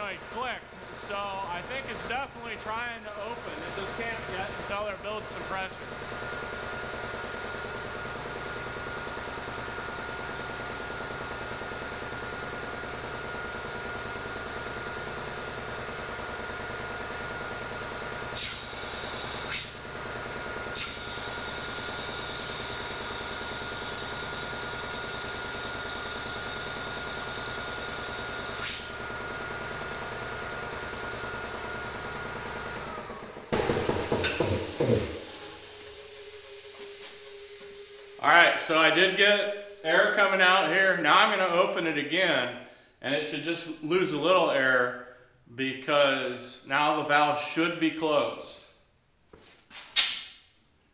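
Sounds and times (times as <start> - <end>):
air compressor running: 0.0 - 41.6
compressed air hissing: 18.4 - 19.8, 33.6 - 39.9.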